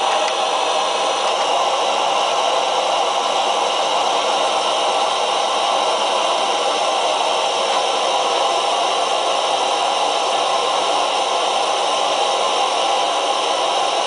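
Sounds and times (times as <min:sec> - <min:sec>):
gas stove burner hissing: 0:00.0 - 0:14.0.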